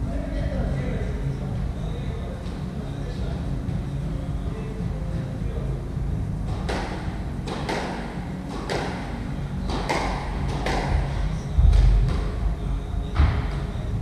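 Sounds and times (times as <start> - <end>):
squash ball hits ringing: 6.5 - 12.4
heavy low thud: 10.0 - 13.8.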